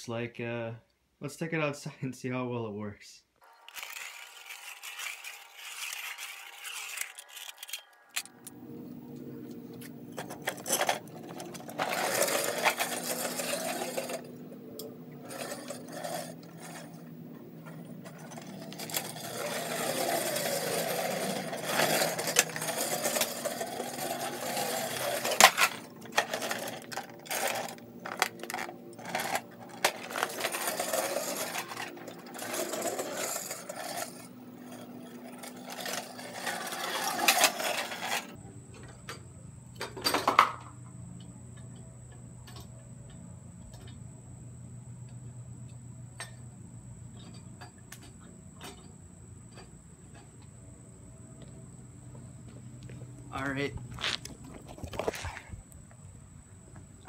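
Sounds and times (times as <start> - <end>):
scooter wheels rumbling on asphalt: 3.4 - 38.4, 51.4 - 57.0.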